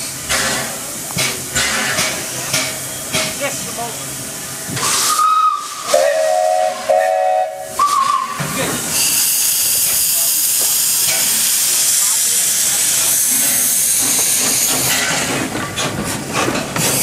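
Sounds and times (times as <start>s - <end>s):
steam hissing: 0.0s - 17.0s
low steam whistle blasts: 4.8s - 9.6s
high steam whistle: 4.8s - 9.9s.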